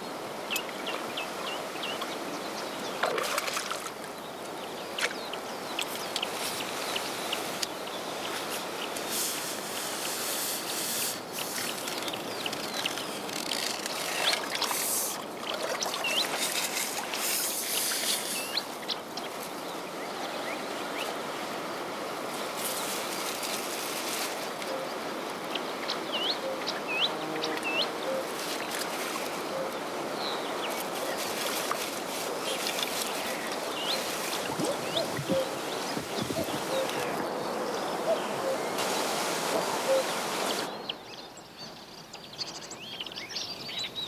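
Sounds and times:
outdoor hiss: 0:05.9 - 0:13.4, 0:14.0 - 0:15.4, 0:16.1 - 0:19.8, 0:27.0 - 0:40.8
birds chirping: 0:32.3 - 0:44.0.

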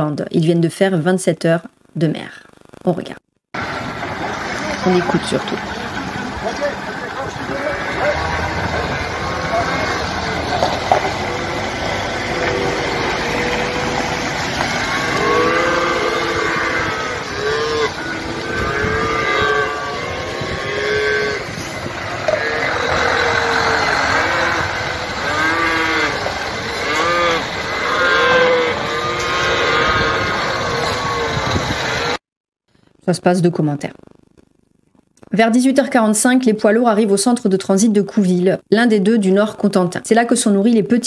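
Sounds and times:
trucks running: 0:03.6 - 0:32.2
calves bawling: 0:04.6 - 0:32.1.

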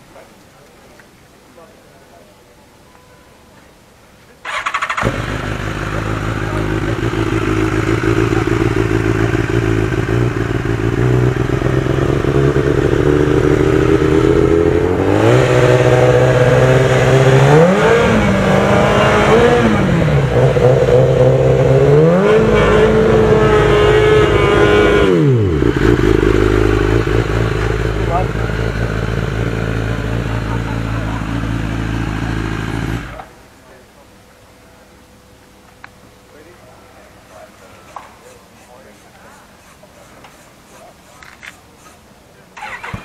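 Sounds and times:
motorcycle engine idling and revving: 0:04.5 - 0:33.5, 0:40.8 - 0:43.0.

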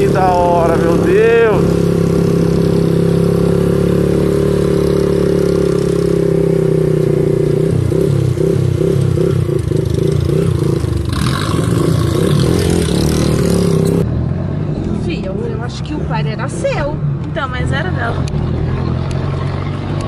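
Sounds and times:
small motorcycle engine running: 0:00.0 - 0:14.0.

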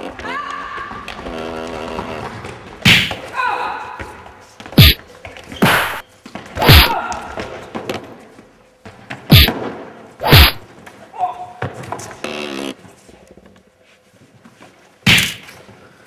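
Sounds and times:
punch and kick hits: 0:02.8 - 0:03.2, 0:04.8 - 0:05.0, 0:05.6 - 0:06.0, 0:06.6 - 0:07.0, 0:09.3 - 0:09.6, 0:10.2 - 0:10.6, 0:15.1 - 0:15.4.

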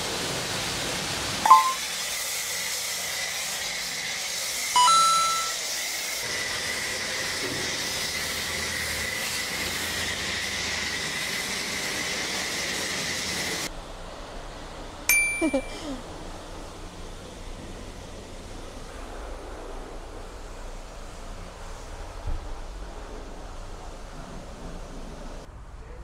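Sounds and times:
foam lance spraying with whine: 0:00.0 - 0:04.8, 0:05.6 - 0:15.0, 0:16.0 - 0:25.5
brief loud beep: 0:01.5 - 0:01.8, 0:04.8 - 0:05.6
sharp metallic clink: 0:15.1 - 0:16.0.

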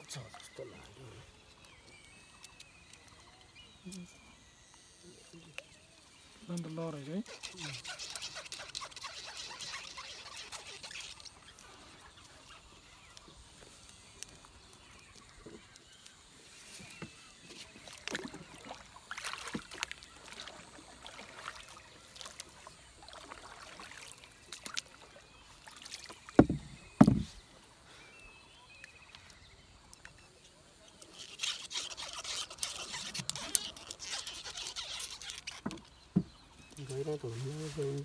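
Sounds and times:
water sounds: 0:00.0 - 0:38.0
water splashing: 0:06.4 - 0:12.9, 0:17.5 - 0:27.5
light knocks on wooden boat: 0:26.3 - 0:27.4, 0:35.6 - 0:36.4
heavy thumps: 0:26.4 - 0:27.4.

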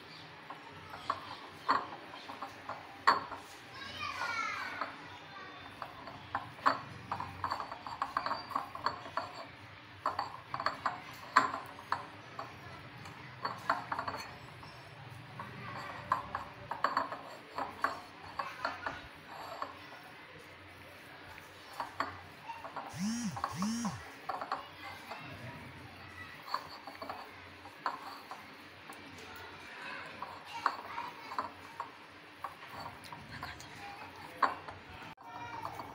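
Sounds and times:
fingers tapping glass bowl: 0:06.1 - 0:09.4.

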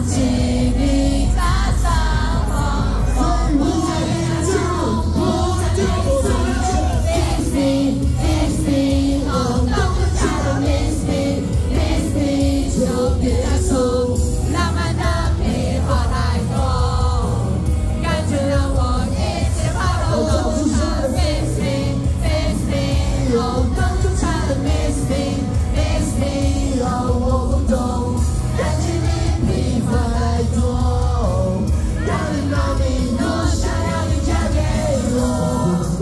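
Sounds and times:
pop backing track with heavy bass: 0:00.0 - 0:36.0
man singing into microphone: 0:02.4 - 0:14.4, 0:15.2 - 0:22.6, 0:23.2 - 0:28.8, 0:29.4 - 0:36.0.

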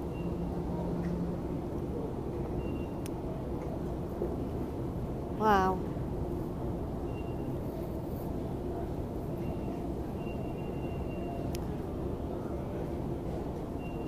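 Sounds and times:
escalator hum and rumble: 0:00.0 - 0:14.0
faint high whine: 0:06.8 - 0:14.0.

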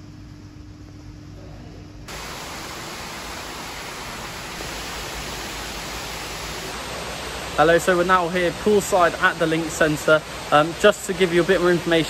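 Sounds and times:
room hum: 0:00.0 - 0:12.0
swimming pool hall hiss: 0:02.1 - 0:12.0.

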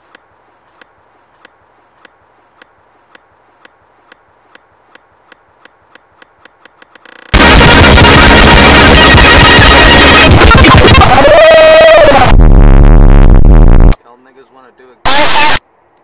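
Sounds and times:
loud distorted music: 0:07.4 - 0:14.0.

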